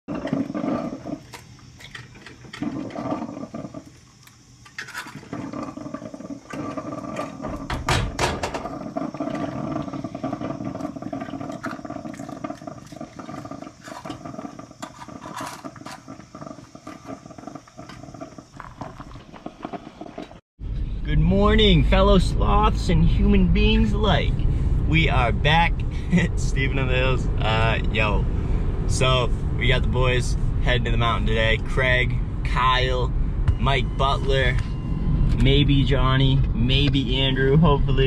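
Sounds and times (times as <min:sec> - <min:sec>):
steady hum: 0:20.6 - 0:38.0.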